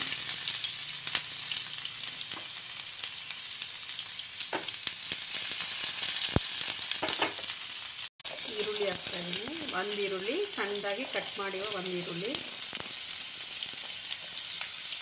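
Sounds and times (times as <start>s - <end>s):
garlic sizzling in hot oil: 0.0s - 15.0s.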